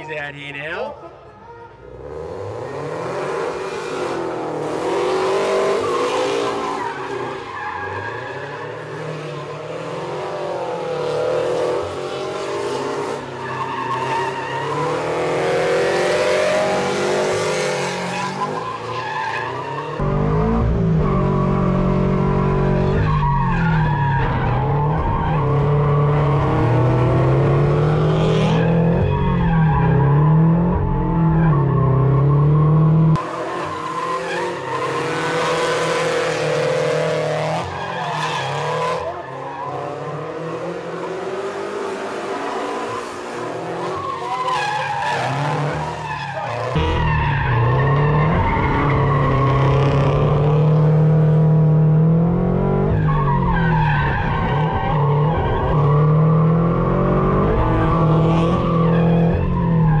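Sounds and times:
car engine revving: 0:19.5 - 1:00.0.

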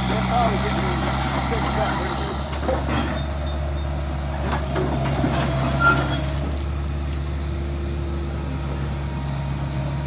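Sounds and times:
diesel engine idling: 0:00.0 - 0:10.0
brief high squeak: 0:05.8 - 0:06.4.

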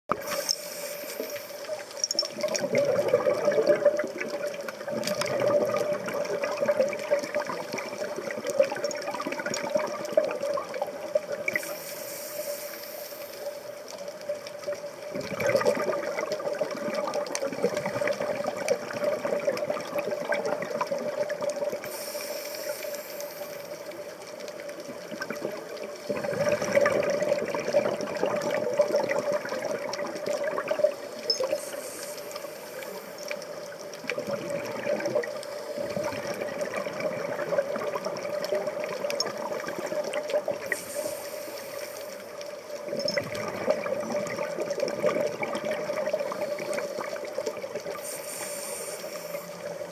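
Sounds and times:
exhaled bubbles underwater: 0:00.1 - 0:11.9, 0:13.6 - 0:49.9
regulator inhalation hiss: 0:00.2 - 0:01.9, 0:11.5 - 0:13.7, 0:21.8 - 0:24.1, 0:31.5 - 0:33.3, 0:40.7 - 0:42.4, 0:47.9 - 0:49.9.

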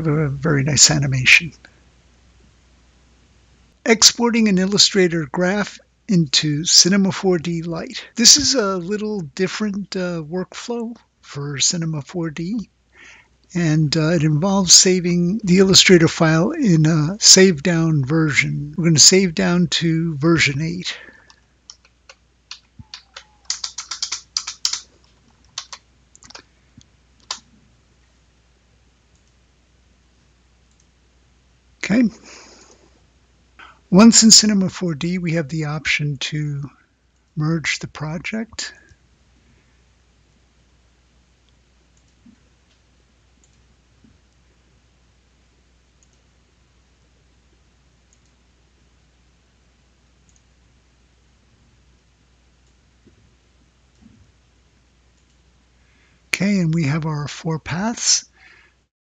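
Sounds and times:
low room hum: 0:00.0 - 0:58.9
typing on computer keyboard: 0:21.7 - 0:26.4.

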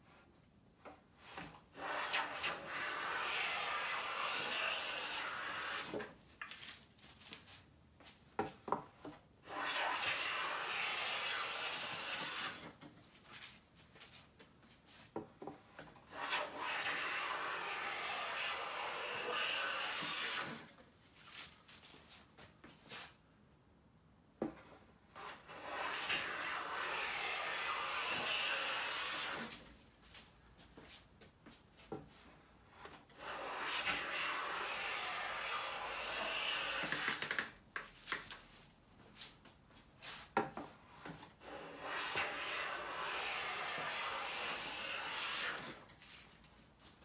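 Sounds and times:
hand plane cutting wood shavings: 0:01.8 - 0:06.1, 0:09.5 - 0:12.7, 0:16.1 - 0:20.7, 0:25.2 - 0:29.6, 0:32.8 - 0:37.5, 0:41.4 - 0:45.9.

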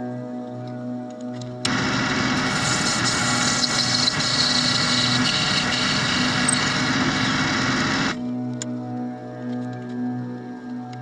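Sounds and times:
metal lathe running: 0:01.7 - 0:08.2
tool cutting metal rod: 0:01.7 - 0:08.2.

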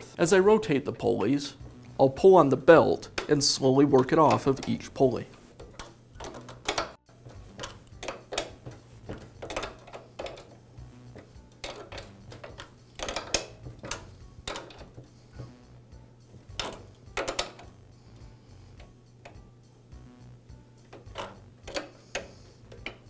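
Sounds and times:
wrench clicking on metal nut: 0:05.6 - 0:08.6, 0:11.5 - 0:14.9, 0:16.5 - 0:17.7, 0:20.9 - 0:23.0.

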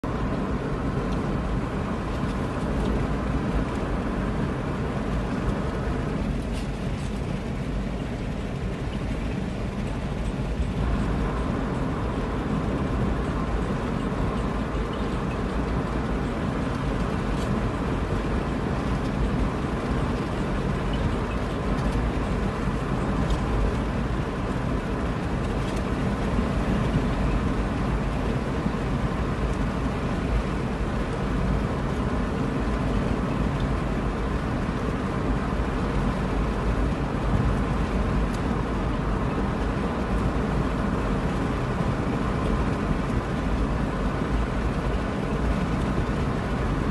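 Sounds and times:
car cabin road and engine noise: 0:00.0 - 0:46.9.

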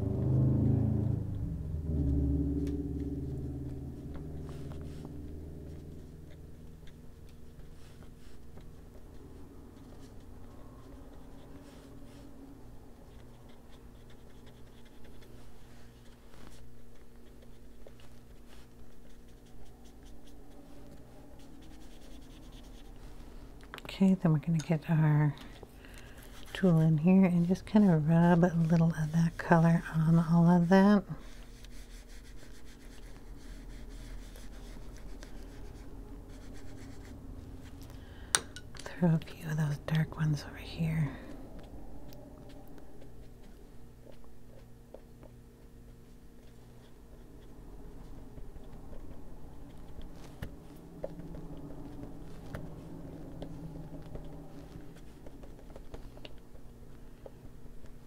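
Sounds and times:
colouring tool scratching on paper: 0:13.0 - 0:23.2, 0:26.1 - 0:37.7.

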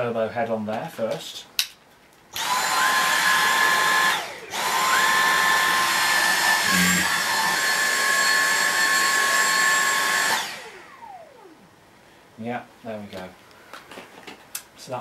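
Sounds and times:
cordless vacuum high whine: 0:02.4 - 0:11.7.

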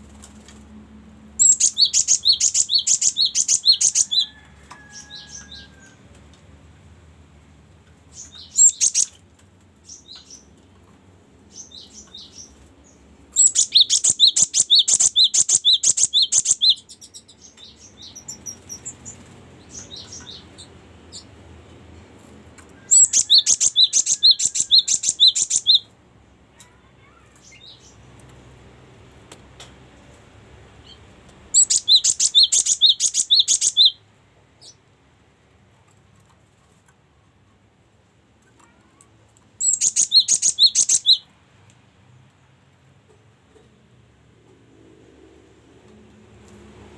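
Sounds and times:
soft bird chirps: 0:01.4 - 0:05.9, 0:08.1 - 0:09.2, 0:11.5 - 0:21.3, 0:22.8 - 0:25.9, 0:31.6 - 0:34.0, 0:39.6 - 0:41.3
bird singing repeated high notes: 0:31.6 - 0:34.0, 0:39.6 - 0:41.2.

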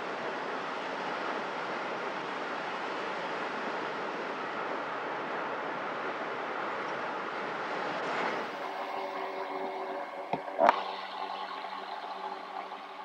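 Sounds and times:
steady hum with tones: 0:07.2 - 0:13.0.

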